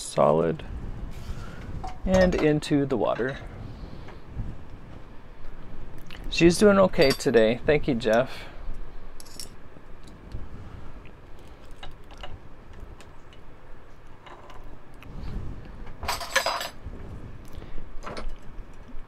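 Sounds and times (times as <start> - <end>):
metal flatware clinking: 1.8 - 3.4, 7.0 - 7.4.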